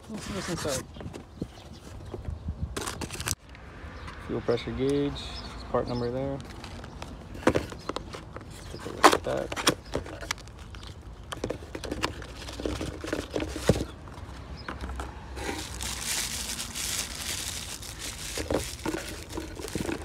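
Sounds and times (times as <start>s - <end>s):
paper rustling and crinkling: 6.4s - 20.0s.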